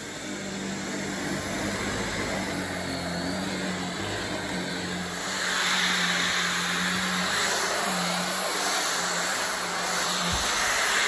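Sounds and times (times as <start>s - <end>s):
stick vacuum running on carpet: 0.0s - 11.0s.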